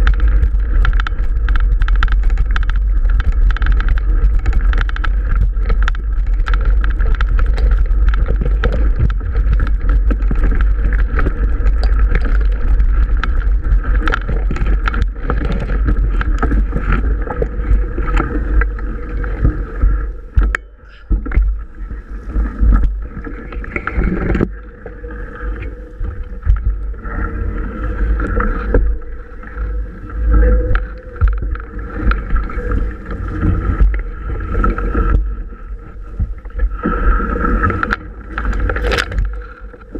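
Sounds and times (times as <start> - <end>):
bike rattling and knocking: 0.0 - 21.8, 30.5 - 34.2, 37.6 - 39.9
wind rumble on microphone: 0.0 - 39.9.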